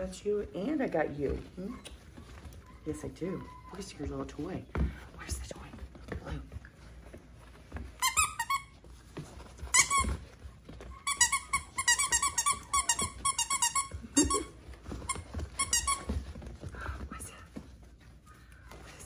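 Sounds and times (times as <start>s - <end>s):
squeaky dog toy squeaking: 8.0s - 8.8s, 9.7s - 10.2s, 10.9s - 16.1s.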